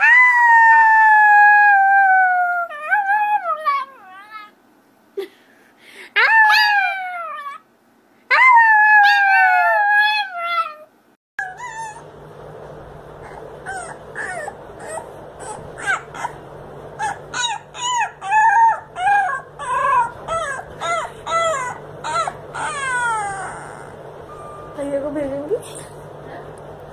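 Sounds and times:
dog howling: 0.0 - 4.5, 6.2 - 7.6, 8.3 - 12.1, 13.2 - 16.4, 17.0 - 24.0
puppy high-pitched cries: 6.2 - 7.6, 8.3 - 12.1, 13.2 - 16.4, 17.0 - 24.0
steady low hum: 11.0 - 26.9.

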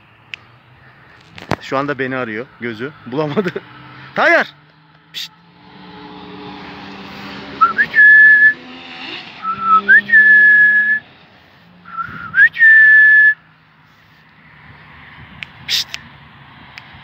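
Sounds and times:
person whistling rising notes: 7.6 - 8.7, 9.4 - 11.1, 11.9 - 13.4.

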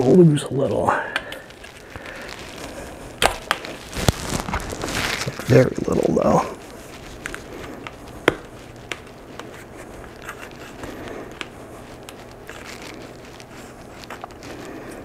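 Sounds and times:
rubber rustling against rim: 1.2 - 15.0.

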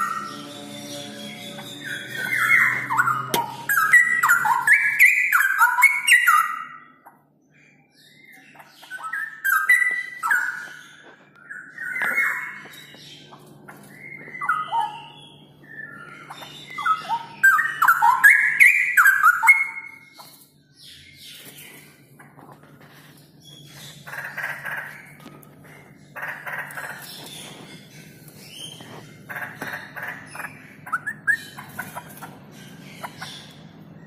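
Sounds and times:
bird singing whistled notes: 0.0 - 6.8.

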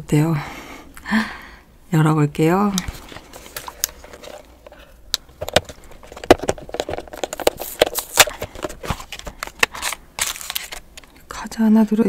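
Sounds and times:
cardboard box tearing open: 7.4 - 10.8.

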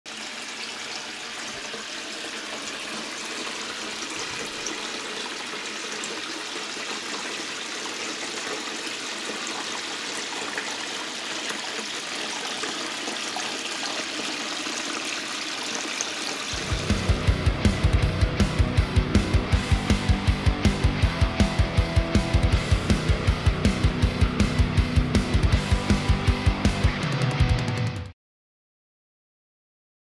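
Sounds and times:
fountain water trickling and splashing: 0.1 - 16.7.

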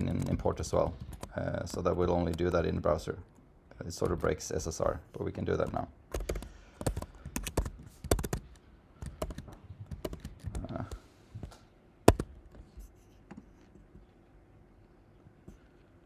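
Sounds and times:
typing on computer keyboard: 5.6 - 10.8, 12.1 - 12.3.

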